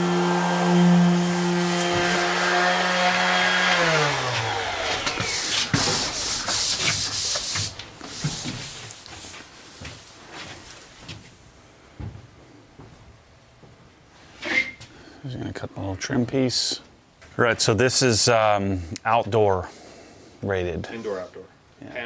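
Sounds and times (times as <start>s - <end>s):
orbital sander running: 0.0s - 7.1s
hand-sanding scrubbing strokes: 0.0s - 10.8s.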